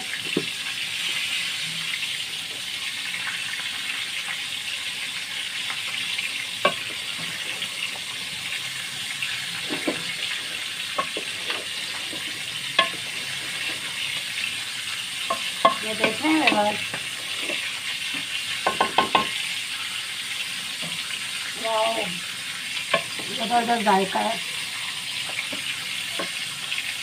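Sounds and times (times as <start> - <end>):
food sizzling in metal pot: 0.0 - 27.0
spoon knocking against pot: 12.8 - 13.0, 15.3 - 17.0, 18.6 - 19.3
wooden spoon stirring: 15.3 - 17.7.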